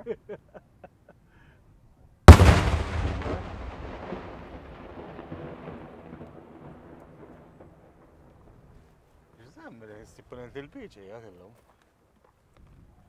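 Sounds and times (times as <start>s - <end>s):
firework shell bang with echo: 2.3s - 5.3s.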